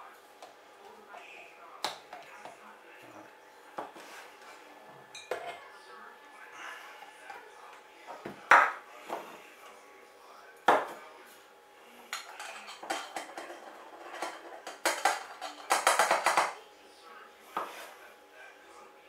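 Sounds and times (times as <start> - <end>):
utensils and jar clattering: 12.2 - 16.5.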